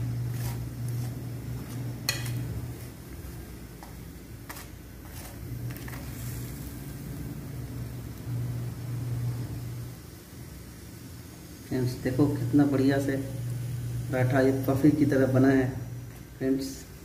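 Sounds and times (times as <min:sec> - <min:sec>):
metal spatula scraping on pan: 0:00.2 - 0:03.0, 0:04.4 - 0:06.6.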